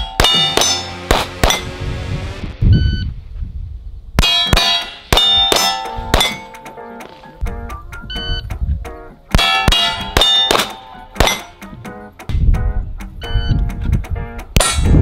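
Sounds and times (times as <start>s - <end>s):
steel plate clanging: 0.0s - 1.7s, 4.2s - 7.4s, 9.3s - 11.8s, 14.6s - 15.0s
pistol shots: 0.1s - 1.6s, 9.3s - 11.6s.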